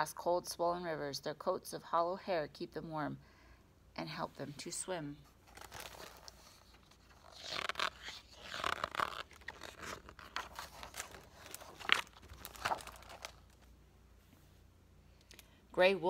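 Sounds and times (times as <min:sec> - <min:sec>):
paper page rustling: 0:05.3 - 0:13.7
page crackling: 0:05.4 - 0:13.7.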